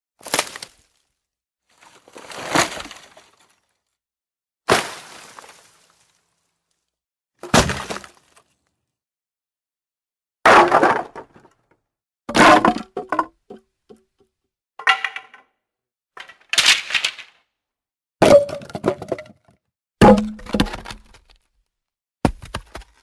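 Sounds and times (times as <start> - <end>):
branches snapping and cracking: 0.2 - 1.1, 2.1 - 3.6.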